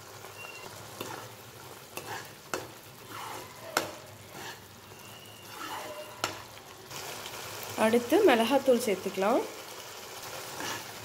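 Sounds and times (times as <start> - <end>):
puree sizzling in pan: 0.0 - 11.0
spatula scraping pan: 0.4 - 6.5, 10.4 - 11.0.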